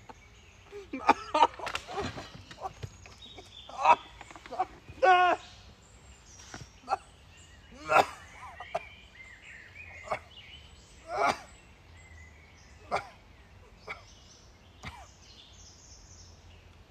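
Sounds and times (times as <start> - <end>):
loud short bird calls: 0.0 - 11.8
birds chirping: 0.0 - 16.9.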